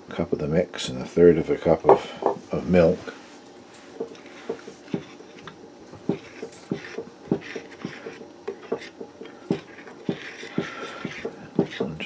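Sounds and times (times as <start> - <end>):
spoon knocking and scraping bowl: 3.8 - 12.0.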